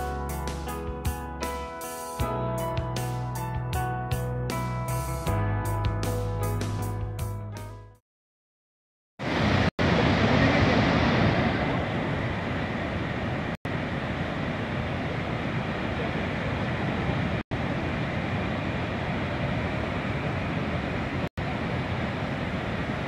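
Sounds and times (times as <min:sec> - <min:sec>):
waterfall roaring: 0:09.2 - 0:23.0.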